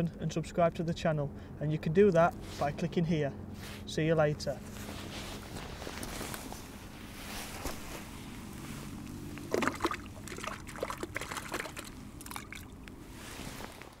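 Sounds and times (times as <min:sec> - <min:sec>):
water sloshing and splashing: 0:07.2 - 0:14.0.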